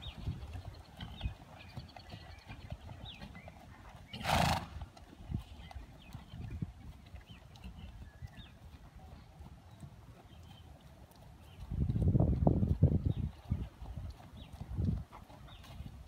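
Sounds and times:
hooves thudding on dirt: 0.0 - 16.0
small birds chirping: 0.0 - 16.0
horse blowing through nostrils: 4.1 - 4.8.

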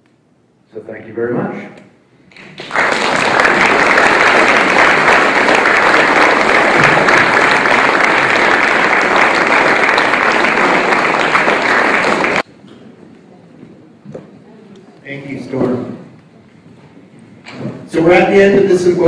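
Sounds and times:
audience applauding: 2.3 - 12.5.

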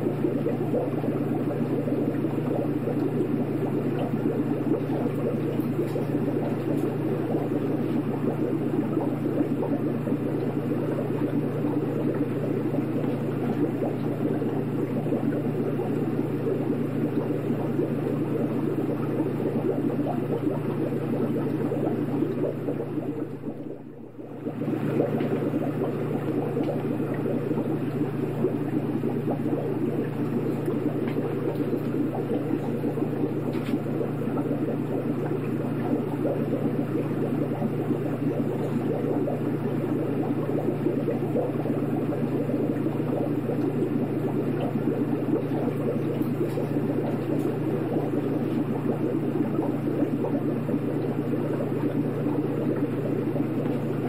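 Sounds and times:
aquarium water bubbling: 0.0 - 54.0
low motor hum: 0.0 - 54.0.

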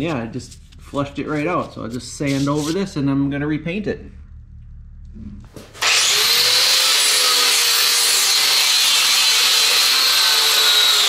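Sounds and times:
angle grinder sanding metal: 5.8 - 11.0.

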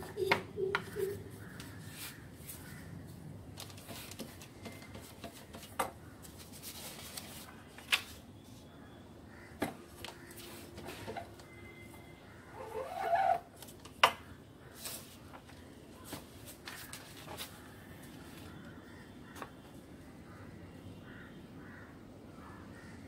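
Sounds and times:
paper sheets rustling: 3.5 - 8.3, 14.8 - 18.6.

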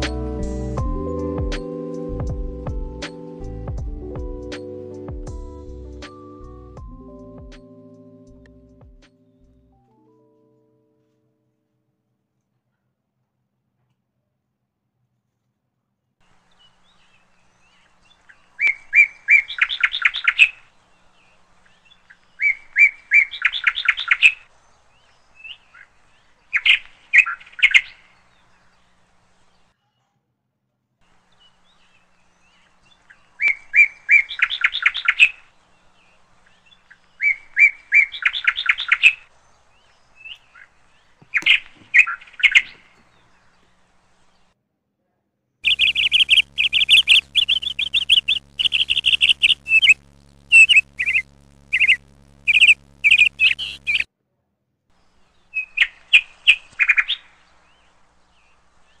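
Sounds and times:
bird chirping: 16.4 - 29.7, 31.2 - 44.5, 45.6 - 54.1
faint low hum: 38.6 - 54.1.

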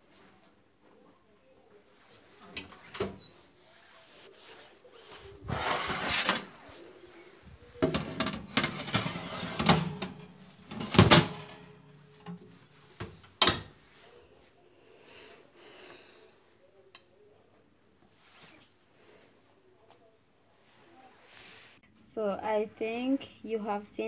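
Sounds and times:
metal rack and tray clattering: 7.8 - 12.4.

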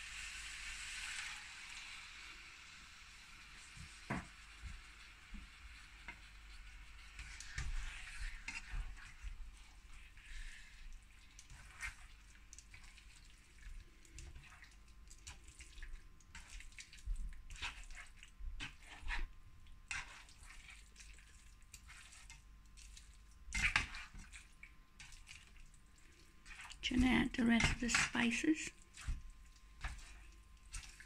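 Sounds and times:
spoon scraping in a frying pan: 5.6 - 13.3, 17.5 - 20.9, 23.5 - 24.3, 26.4 - 29.2.

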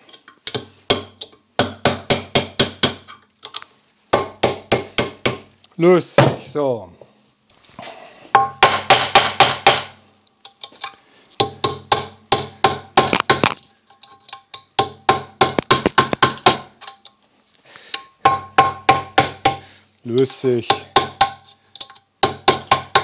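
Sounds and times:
hammer striking metal parts: 20.2 - 23.0.

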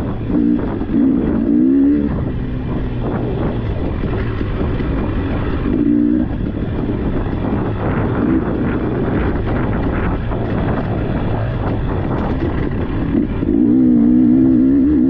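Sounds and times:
dirt bike engine running: 0.0 - 15.0
clatter and knocks: 2.7 - 13.5.

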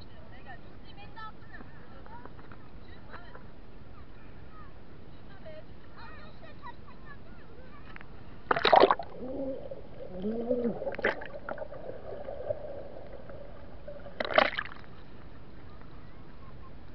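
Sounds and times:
water splashing: 8.5 - 15.3
muffled underwater hum: 9.1 - 15.3.

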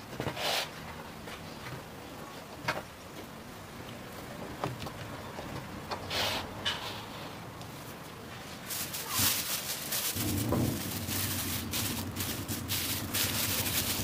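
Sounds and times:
hands rustling dough: 7.7 - 14.0.

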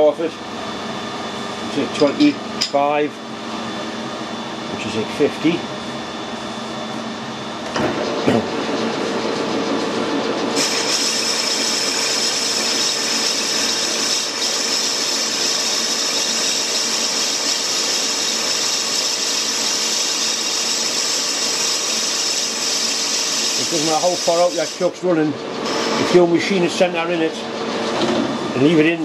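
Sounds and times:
lathe motor hum: 0.0 - 29.0
lathe tool hissing cut: 9.1 - 29.0.

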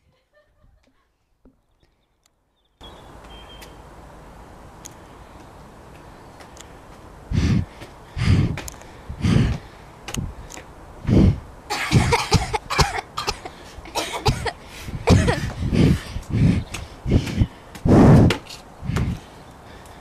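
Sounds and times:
person coughing: 11.7 - 15.5.

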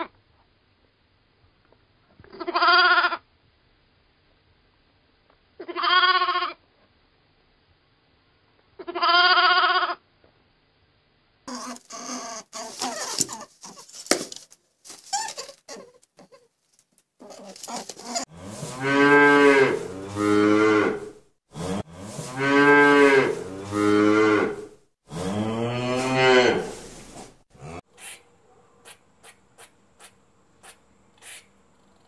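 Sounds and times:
cattle mooing: 18.3 - 26.8.

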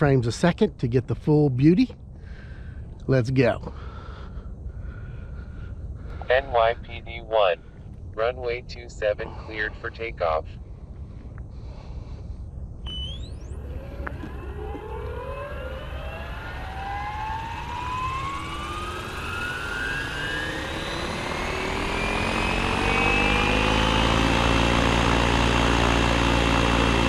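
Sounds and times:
model helicopter whine: 12.9 - 27.0.

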